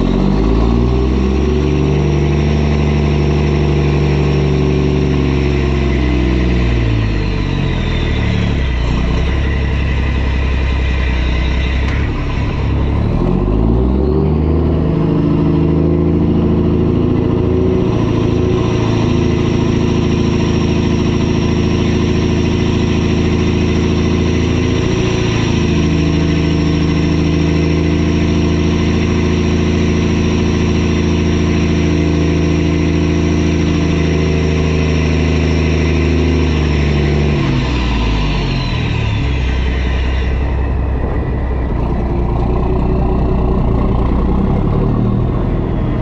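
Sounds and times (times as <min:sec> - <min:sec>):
truck engine under load: 0:00.0 - 0:46.0
thin high whine: 0:03.6 - 0:13.8, 0:16.4 - 0:44.7.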